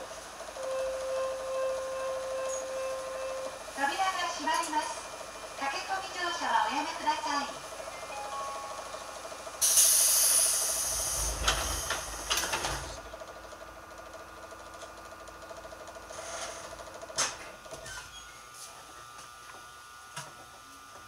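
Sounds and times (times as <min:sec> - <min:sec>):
electric train running: 0:00.0 - 0:14.7
sudden hiss: 0:09.6 - 0:12.9.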